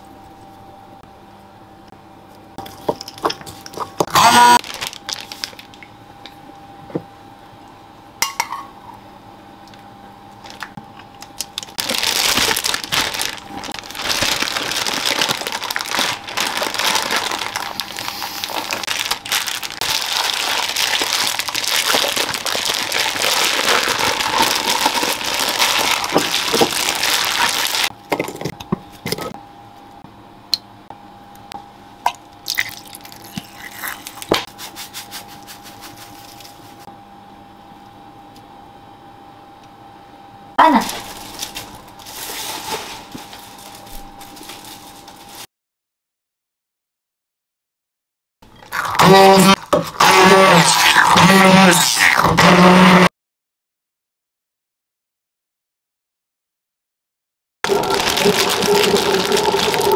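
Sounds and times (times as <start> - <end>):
plastic bag crinkling: 4.4 - 5.9, 10.4 - 10.7, 11.3 - 28.0, 35.4 - 36.8, 40.7 - 45.5, 57.7 - 59.9.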